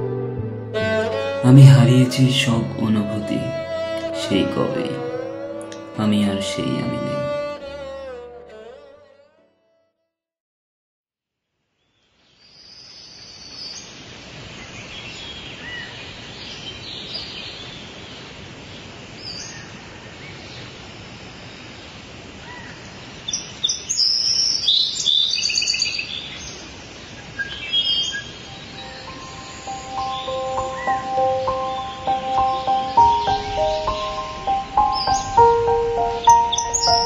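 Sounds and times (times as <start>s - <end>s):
steady outdoor hiss: 0.0s - 8.6s, 11.6s - 37.0s
birds chirping: 0.7s - 7.6s, 22.5s - 37.0s.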